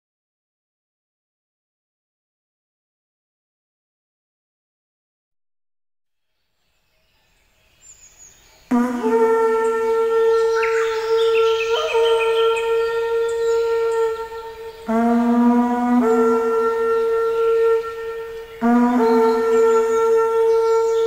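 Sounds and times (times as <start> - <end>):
conch-shell trumpet blast: 8.7 - 21.0.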